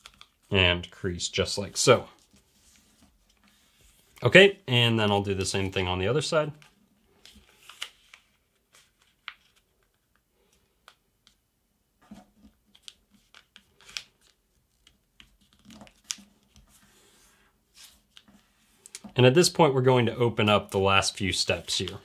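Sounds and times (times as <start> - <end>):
paper rustling and crackling: 0.0 - 0.6, 12.4 - 17.0.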